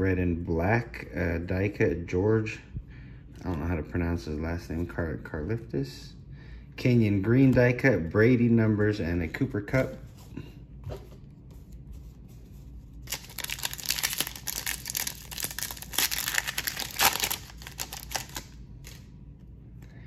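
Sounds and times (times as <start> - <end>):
foil pack crinkling: 13.0 - 19.0.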